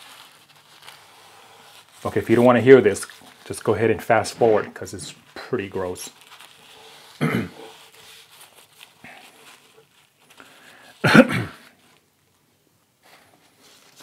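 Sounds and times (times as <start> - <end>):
man clearing throat: 7.2 - 7.6, 11.0 - 11.7.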